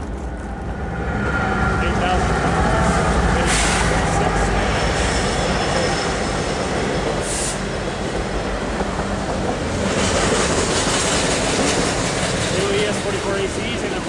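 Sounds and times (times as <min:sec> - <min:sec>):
diesel locomotive passing: 0:00.0 - 0:14.0
train wheels rumbling on rail: 0:00.0 - 0:14.0
high wheel squeal: 0:01.0 - 0:07.8.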